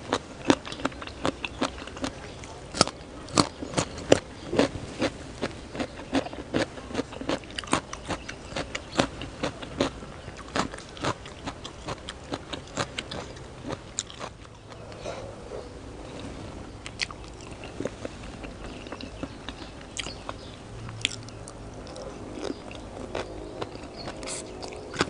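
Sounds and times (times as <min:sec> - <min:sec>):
person chewing food: 0:00.1 - 0:25.0.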